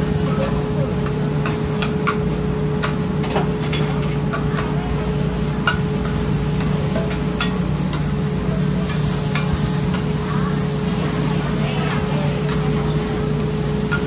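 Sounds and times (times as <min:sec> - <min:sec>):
metal spatulas clinking on griddle: 0:05.6 - 0:08.1.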